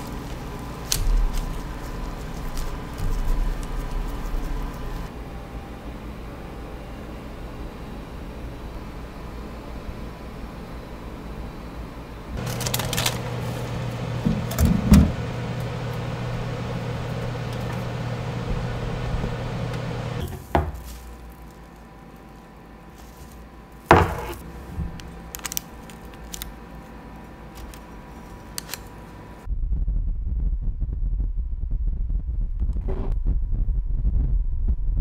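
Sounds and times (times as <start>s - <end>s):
fan blowing across microphone: 0.0s - 20.4s
oven humming: 0.0s - 29.5s.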